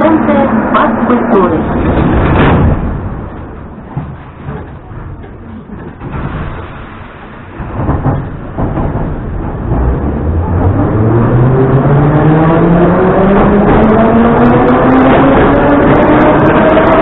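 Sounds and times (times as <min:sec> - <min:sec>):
train knocks and rumble: 0:00.0 - 0:17.0.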